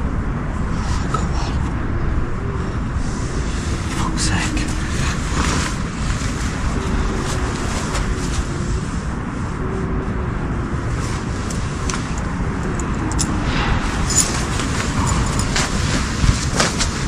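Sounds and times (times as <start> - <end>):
wind rumble: 0.0 - 17.0
camping gear rustling and clicking: 11.0 - 17.0.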